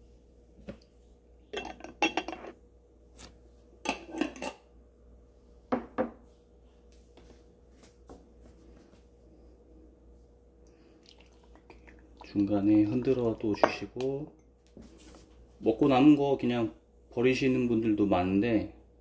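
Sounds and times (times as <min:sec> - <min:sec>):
glass jar and dishes clinking: 0:01.5 - 0:02.5, 0:03.9 - 0:04.6.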